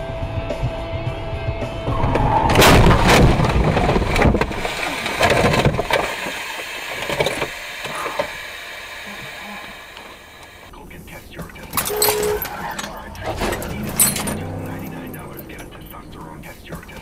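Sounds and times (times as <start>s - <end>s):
car crash impact: 1.9s - 8.3s, 11.8s - 17.0s
metal scraping and clattering: 11.6s - 17.0s.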